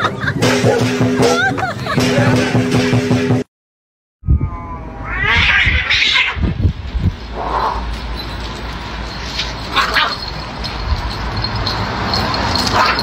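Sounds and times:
cats yowling and screeching: 4.4 - 6.6, 7.3 - 7.9, 9.4 - 10.2
cats crying while grappling: 5.0 - 6.5, 9.4 - 10.2.

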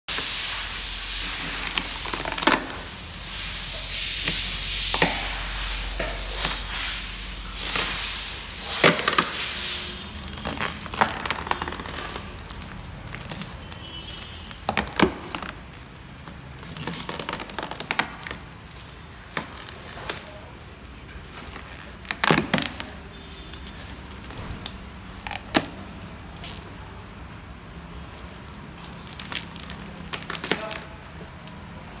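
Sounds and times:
steady hiss: 0.1 - 14.4
plastic film peeling crackles: 0.1 - 32.0.

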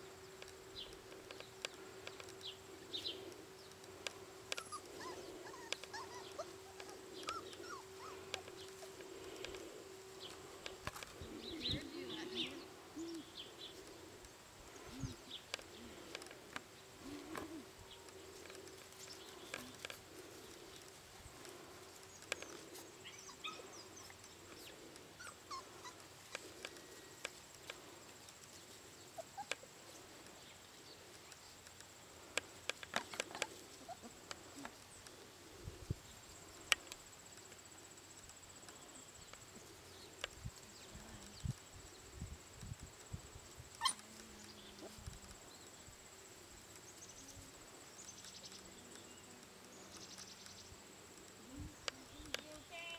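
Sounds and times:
puppies whimpering and squeaking: 4.6 - 9.0, 25.2 - 26.1, 29.2 - 29.7, 43.8 - 44.0.

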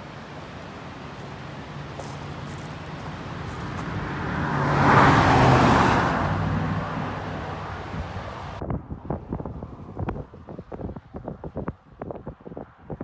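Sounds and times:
vehicle passing by: 0.0 - 8.6.

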